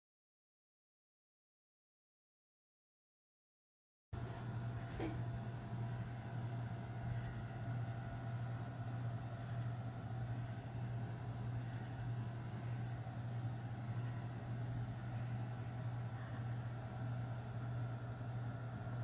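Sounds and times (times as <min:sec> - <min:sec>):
steady low hum: 0:04.2 - 0:19.0.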